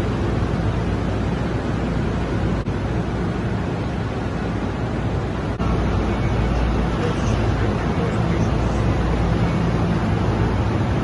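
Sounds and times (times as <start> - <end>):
low machinery hum: 0.0 - 11.0
train rumble and hiss: 0.0 - 11.0.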